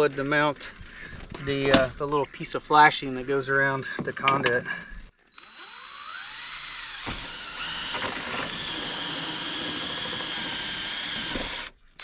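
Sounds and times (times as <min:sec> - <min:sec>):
power drill whining: 0:05.3 - 0:12.0.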